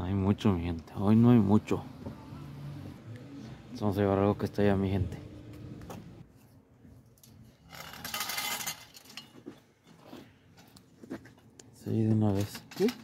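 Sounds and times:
metal wire rack rattling: 7.6 - 9.4, 12.3 - 13.0.

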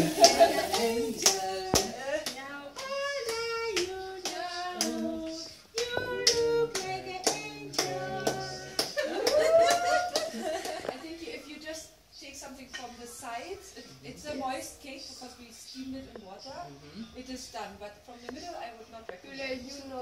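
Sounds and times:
group singing: 0.0 - 10.5
people clapping in rhythm: 0.0 - 10.9.

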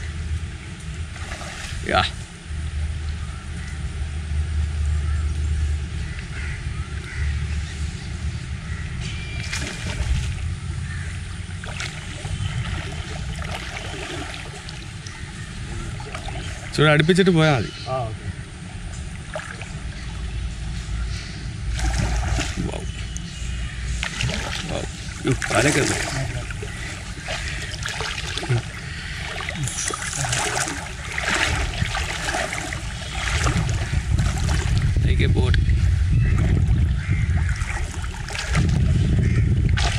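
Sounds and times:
steady low rumble: 0.0 - 39.9
river water sloshing and swirling: 0.7 - 2.6, 6.5 - 17.7, 18.3 - 39.9
small water splashes: 1.1 - 2.0, 9.0 - 16.9, 19.0 - 20.5, 21.6 - 39.9.

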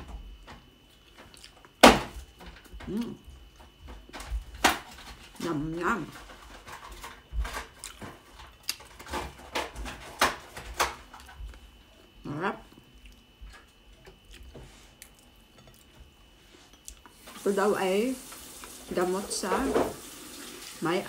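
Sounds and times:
person humming mm: 2.8 - 3.3.

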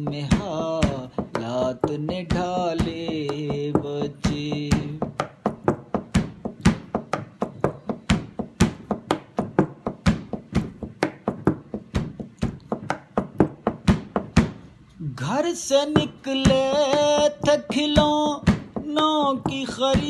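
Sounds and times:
person singing: 0.0 - 5.2, 15.0 - 20.0
hand percussion beat: 0.0 - 14.7, 15.6 - 20.0.

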